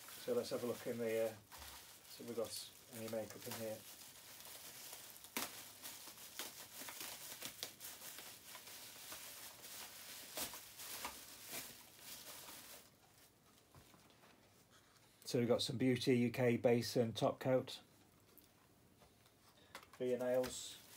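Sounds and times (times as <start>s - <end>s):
plastic bag crinkling: 0.0s - 13.3s, 20.0s - 20.9s.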